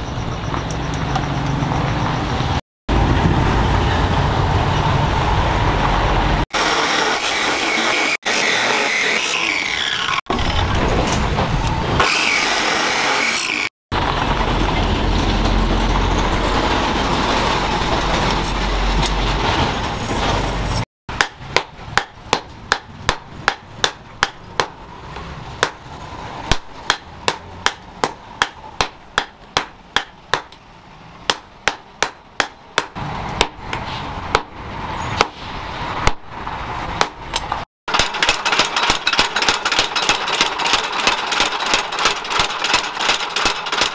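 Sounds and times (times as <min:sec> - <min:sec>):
machine noise with low rumble: 0:00.0 - 0:06.4, 0:10.3 - 0:12.0, 0:13.9 - 0:43.9
abrasive saw cutting steel: 0:06.5 - 0:10.7, 0:12.0 - 0:13.7.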